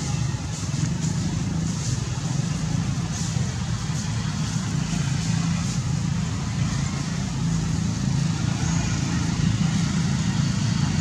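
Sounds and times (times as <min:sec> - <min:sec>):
engine running low rumble: 0:00.0 - 0:11.0.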